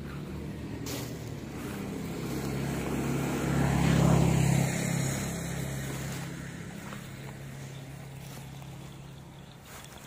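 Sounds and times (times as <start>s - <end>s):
vehicle engine humming: 0.0s - 10.0s.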